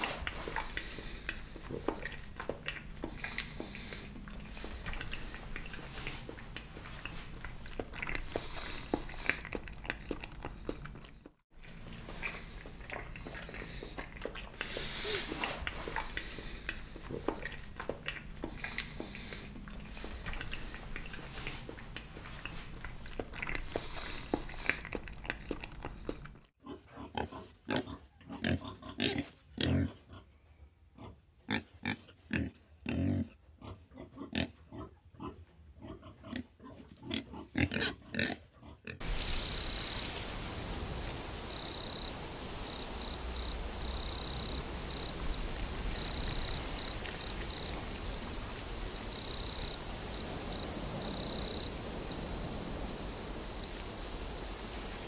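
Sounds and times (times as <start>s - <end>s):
hiss: 12.2s - 17.6s, 39.0s - 55.0s
high insect trill: 39.0s - 55.0s.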